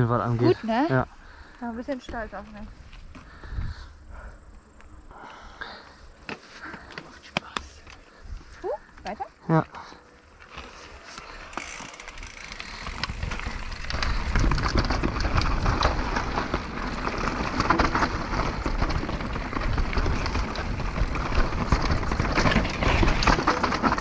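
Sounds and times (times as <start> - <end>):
bike tyres crunching over stones: 0.0 - 24.0
bike clattering over bumps: 10.4 - 24.0.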